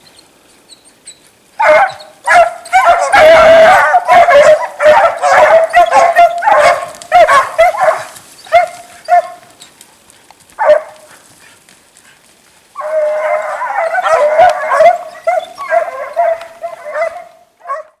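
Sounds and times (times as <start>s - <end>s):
hounds baying: 1.6s - 9.7s, 10.6s - 11.6s, 12.8s - 18.0s.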